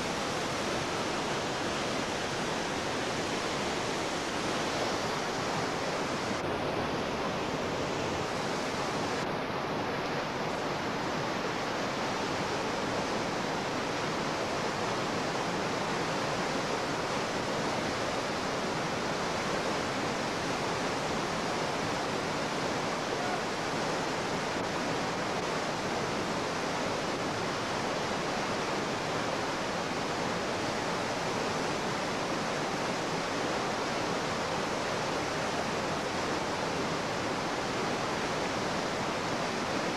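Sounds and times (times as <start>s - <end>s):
whitewater rapids rushing: 0.0s - 39.9s.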